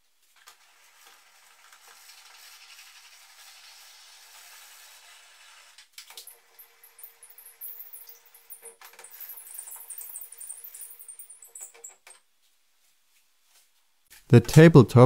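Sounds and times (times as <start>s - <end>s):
handwheel crank squeaking and clicking: 6.2s - 12.2s.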